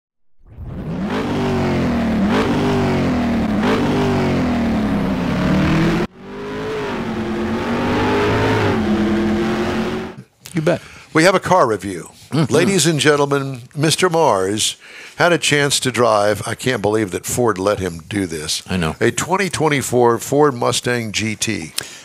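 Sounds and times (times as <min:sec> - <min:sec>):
car engine revving: 0:00.6 - 0:10.2.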